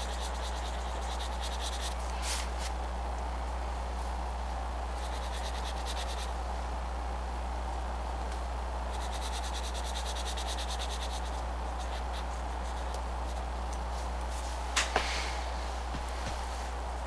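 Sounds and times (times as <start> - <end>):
pencil scratching on paper: 0.0 - 2.6, 5.0 - 6.3, 8.9 - 13.4
low electrical hum: 0.0 - 17.0.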